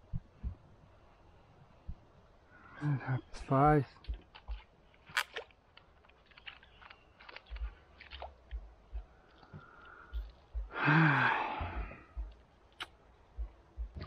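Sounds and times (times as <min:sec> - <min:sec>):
low thumps: 0:10.1 - 0:10.8, 0:11.4 - 0:12.4, 0:13.3 - 0:14.0
man sighing loudly: 0:10.7 - 0:12.0.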